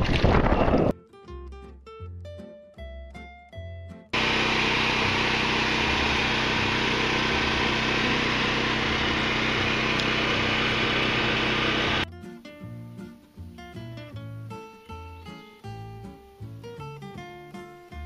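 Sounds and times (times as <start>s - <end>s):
acoustic guitar music: 0.8s - 4.2s, 12.0s - 18.0s
loud steady machine noise: 4.2s - 12.1s.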